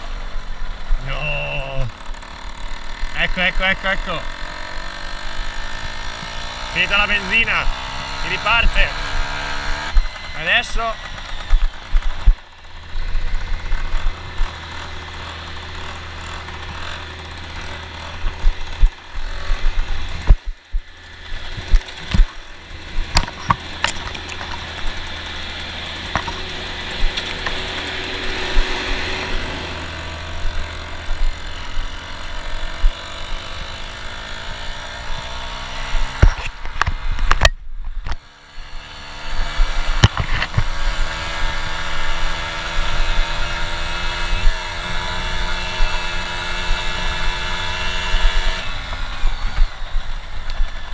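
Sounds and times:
moped engine running: 0.0s - 50.9s
knocks and rattles from bumps: 10.9s - 29.1s.

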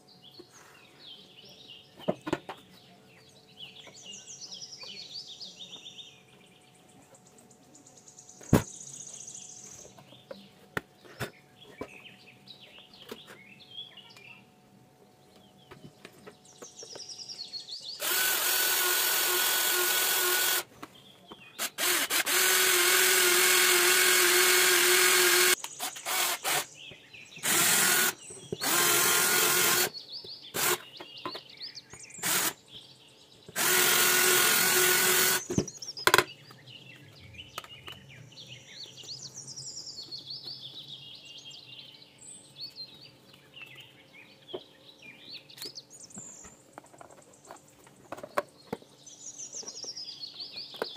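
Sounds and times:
birds chirping: 0.0s - 50.9s
cordless drill boring plastic: 18.0s - 20.6s, 21.6s - 26.7s, 27.4s - 29.9s, 30.6s - 30.8s, 32.2s - 32.6s, 33.6s - 35.6s.

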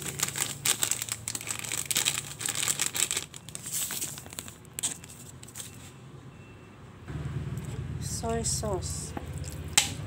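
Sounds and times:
plastic packet crinkling: 0.0s - 5.7s.

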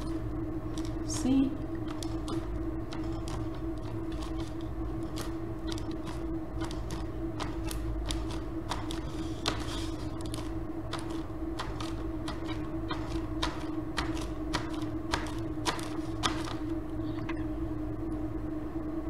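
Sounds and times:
paper crinkling: 0.0s - 1.2s, 1.8s - 16.6s
steady hum: 0.0s - 19.0s
hand rubbing paint on paper: 2.9s - 13.3s.

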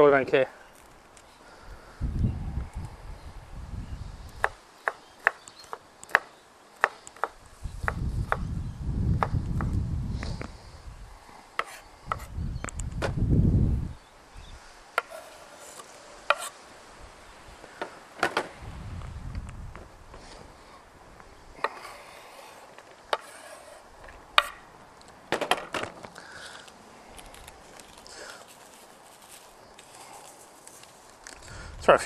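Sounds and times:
knife chopping on wooden board: 24.4s - 24.6s.

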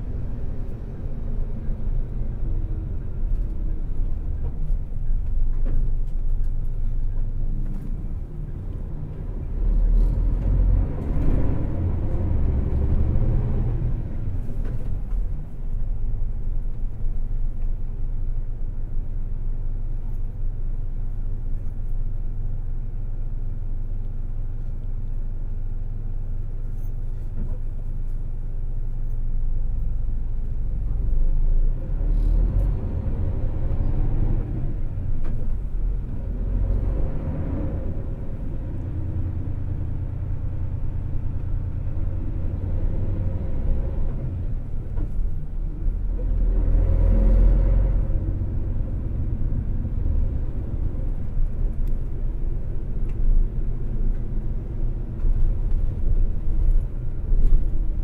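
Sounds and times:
bus diesel engine rumble: 0.0s - 58.0s.

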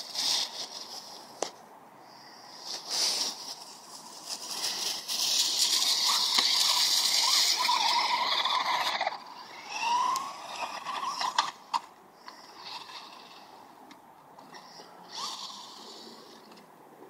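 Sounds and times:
leaves rustling and crackling: 0.0s - 1.5s, 2.6s - 11.3s
toy truck motor whine: 4.4s - 13.5s, 14.4s - 16.6s.

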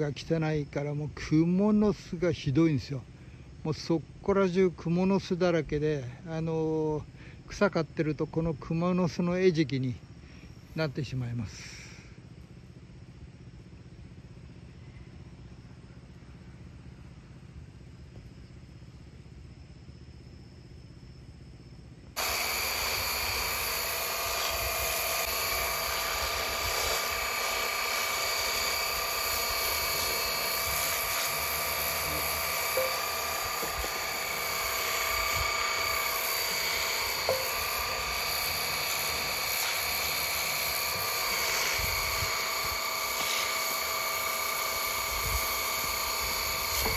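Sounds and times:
faint low hum: 7.0s - 22.2s
pressure washer pump whine: 22.0s - 46.9s
water jet hissing on metal: 22.2s - 46.9s.

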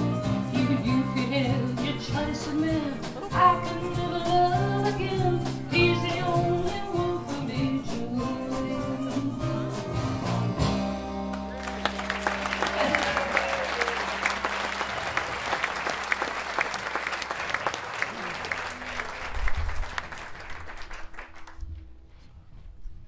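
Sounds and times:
live band playing: 0.0s - 20.1s
audience applauding: 11.3s - 21.6s.

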